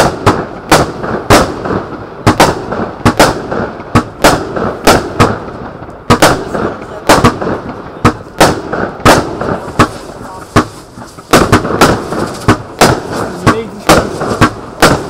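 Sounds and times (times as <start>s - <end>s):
fireworks bangs: 0.0s - 15.0s
fireworks hiss: 6.4s - 15.0s.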